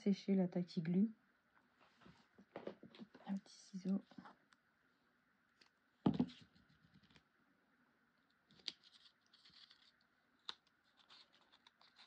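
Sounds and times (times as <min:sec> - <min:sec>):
knock on tabletop: 0:06.1 - 0:06.3
paper rustling: 0:08.5 - 0:12.0
scissors snipping paper: 0:08.5 - 0:12.0.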